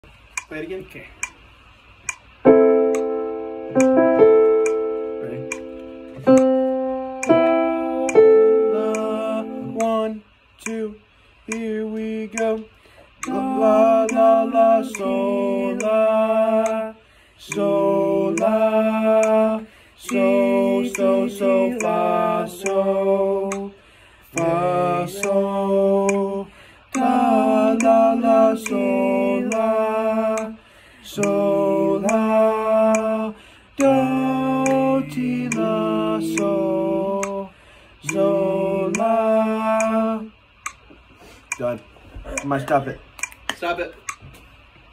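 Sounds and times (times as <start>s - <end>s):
men singing in harmony: 7.3s - 10.8s, 11.5s - 40.4s.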